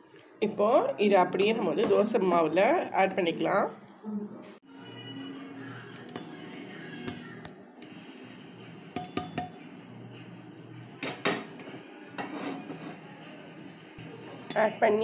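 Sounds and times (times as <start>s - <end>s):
spatula scraping and knocking metal: 5.8s - 9.6s, 10.3s - 13.2s.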